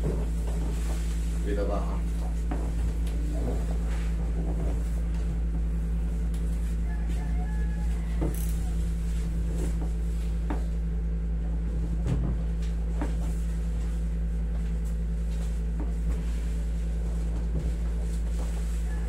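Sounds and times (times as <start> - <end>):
air conditioner humming: 0.0 - 19.0.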